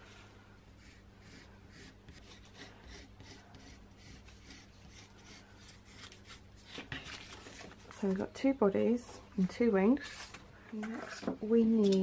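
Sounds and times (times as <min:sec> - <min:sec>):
pencil scratching on cardboard: 0:00.8 - 0:07.0.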